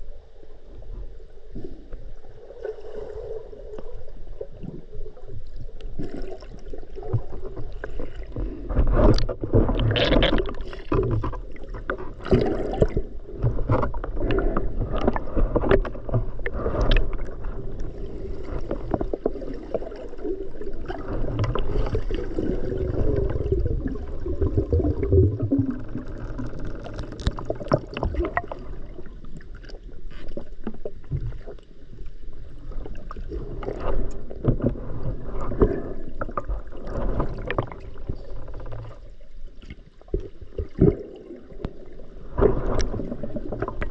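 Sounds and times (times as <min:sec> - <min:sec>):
low underwater rumble: 0:00.0 - 0:43.9
underwater water sloshing: 0:00.0 - 0:43.9
underwater clicks and knocks: 0:07.0 - 0:17.9, 0:24.4 - 0:31.6, 0:33.6 - 0:41.0, 0:41.6 - 0:43.9.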